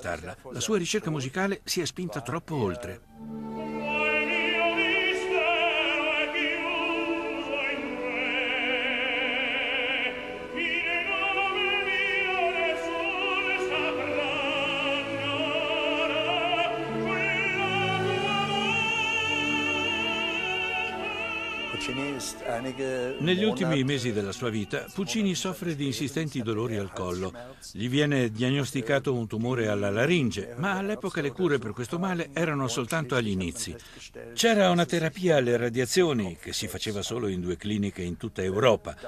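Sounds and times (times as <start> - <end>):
orchestra playing: 3.0 - 25.8
operatic singing: 3.0 - 27.4.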